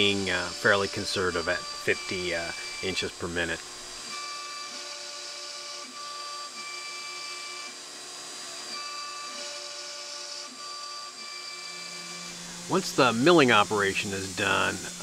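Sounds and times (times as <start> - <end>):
spindle high whine: 0.0 - 4.0, 11.8 - 15.0
stepper motor tones: 0.0 - 15.0.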